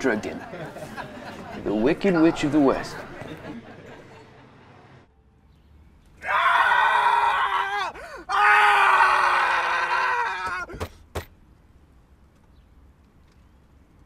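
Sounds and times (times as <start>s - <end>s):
man screaming: 6.2s - 10.7s.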